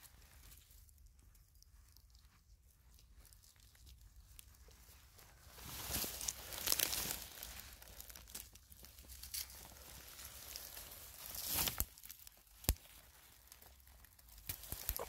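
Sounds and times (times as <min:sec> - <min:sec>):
dry material rustling: 0:03.2 - 0:15.0.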